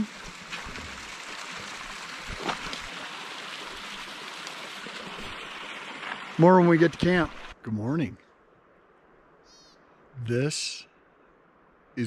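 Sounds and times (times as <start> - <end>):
stream water rushing: 0.0 - 7.6.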